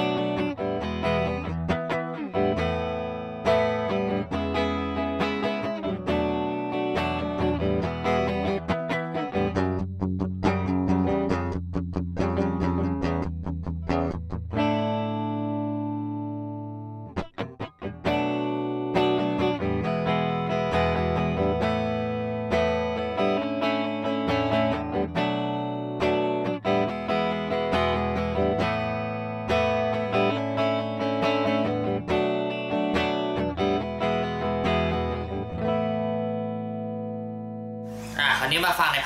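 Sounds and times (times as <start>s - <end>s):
clean electric guitar playing: 0.0s - 39.0s.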